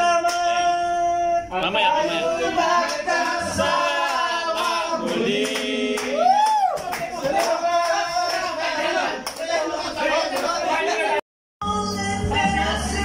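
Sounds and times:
men singing together: 1.6 - 6.2, 6.8 - 11.2
karaoke backing music: 11.6 - 13.0.

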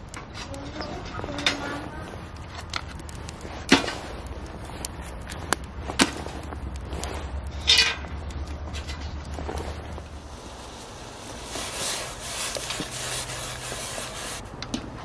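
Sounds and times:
wood fire burning in stove: 0.0 - 15.0
rustling scrape: 0.4 - 14.4
sharp cracks and knocks of log: 2.3 - 9.5.

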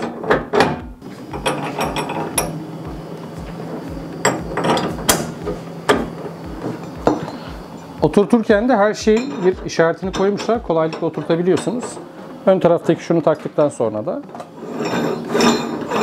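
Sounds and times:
steady low hum: 0.9 - 13.2.

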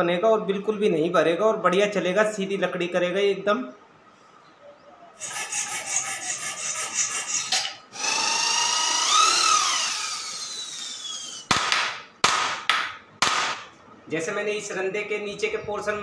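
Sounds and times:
wood being rasped by hand: 5.2 - 7.7
electric power tool running: 7.9 - 11.5.

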